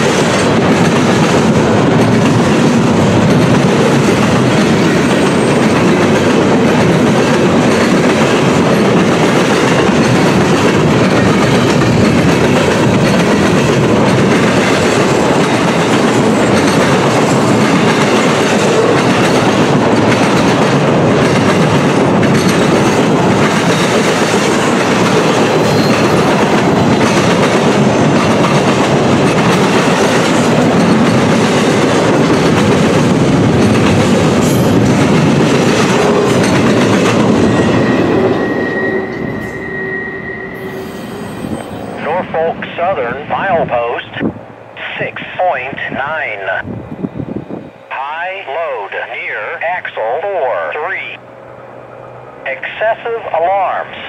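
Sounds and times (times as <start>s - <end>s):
steel wheels clattering over rail joints: 0.0s - 38.6s
freight train passing: 0.0s - 54.0s.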